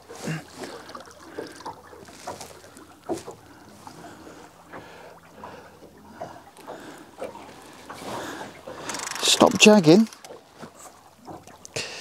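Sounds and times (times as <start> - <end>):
water lapping against hull: 0.0 - 12.0.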